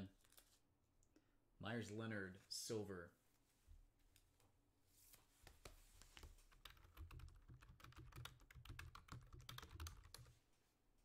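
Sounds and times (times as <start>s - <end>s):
typing on computer keyboard: 6.5s - 10.3s.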